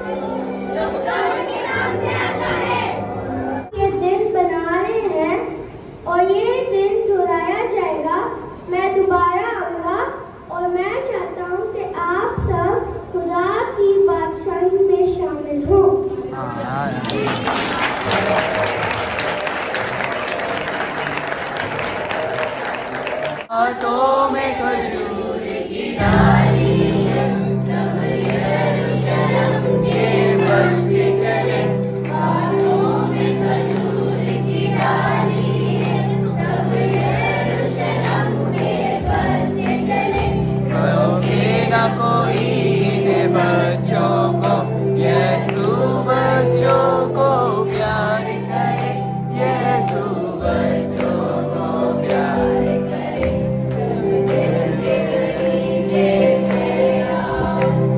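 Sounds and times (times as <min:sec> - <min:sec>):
children singing: 0:00.0 - 0:03.7, 0:23.6 - 0:57.9
sustained low accompaniment notes: 0:26.0 - 0:57.9.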